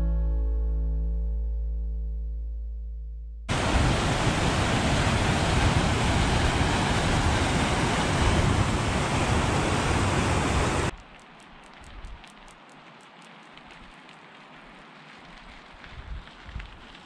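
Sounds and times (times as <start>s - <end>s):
whitewater rushing over boulders: 3.5s - 10.9s.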